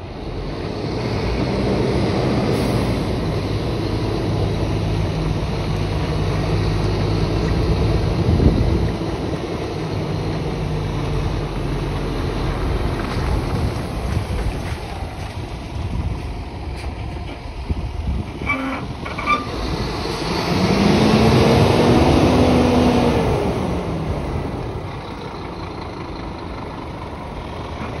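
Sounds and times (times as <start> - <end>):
truck diesel engine running: 0.0 - 28.0
short squeaks: 18.4 - 19.6.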